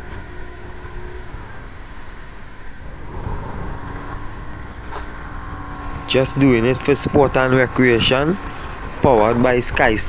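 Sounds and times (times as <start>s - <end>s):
outboard motor running: 4.6s - 9.4s
water rushing along hull: 4.6s - 10.0s.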